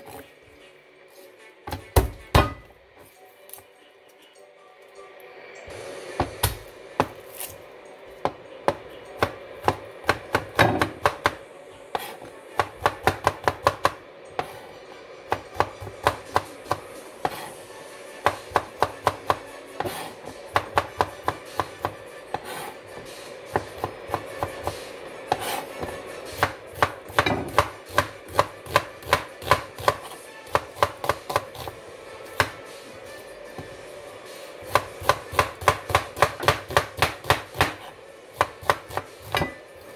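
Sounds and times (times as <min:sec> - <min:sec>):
knife chopping on cutting board: 0:01.7 - 0:02.7, 0:08.2 - 0:14.7, 0:15.3 - 0:17.6, 0:18.2 - 0:32.7, 0:34.7 - 0:39.6.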